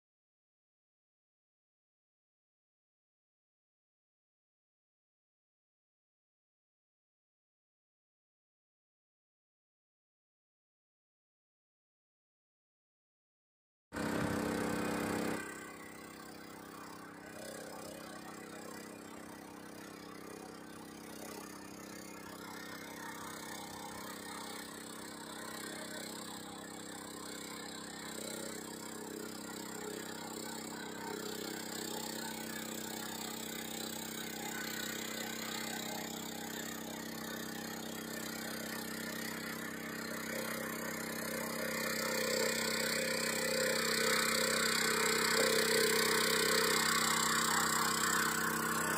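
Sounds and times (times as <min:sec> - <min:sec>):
rice transplanter engine running: 0:14.0 - 0:48.9.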